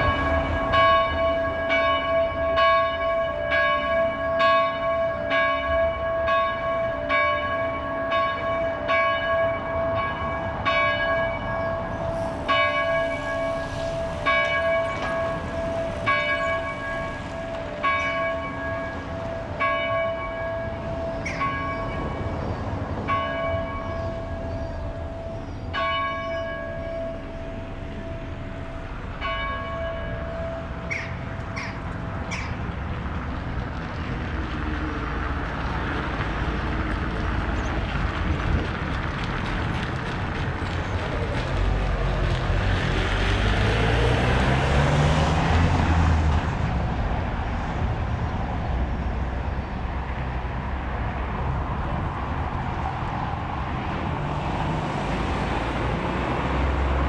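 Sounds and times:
church bells ringing: 0:00.0 - 0:33.5.

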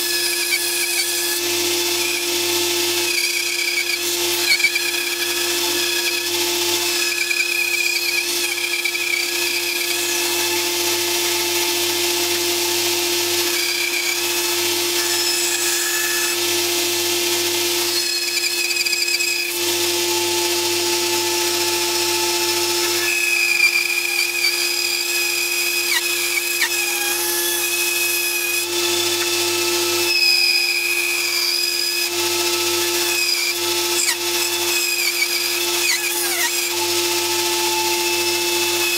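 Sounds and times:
bandsaw humming: 0:00.0 - 0:38.9
saw blade whining through wood: 0:00.0 - 0:38.9.

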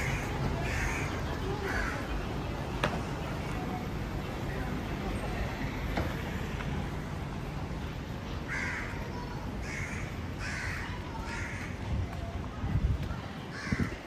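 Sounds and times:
crow cawing: 0:00.0 - 0:02.0, 0:08.5 - 0:09.0, 0:09.6 - 0:11.8, 0:13.5 - 0:14.0
low rumble of street noise: 0:00.0 - 0:14.0.

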